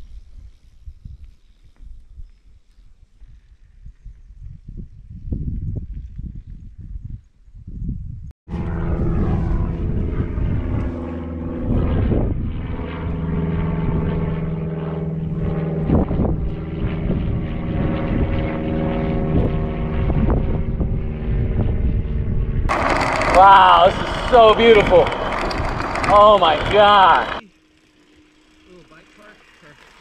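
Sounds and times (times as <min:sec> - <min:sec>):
steady mechanical hum: 0:08.5 - 0:30.0.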